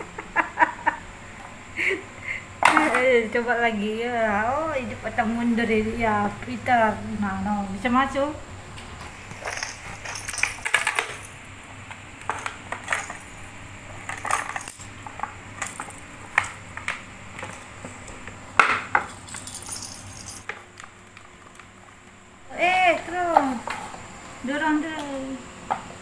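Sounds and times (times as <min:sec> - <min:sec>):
little bell jingling: 0:09.4 - 0:11.4, 0:19.1 - 0:20.5.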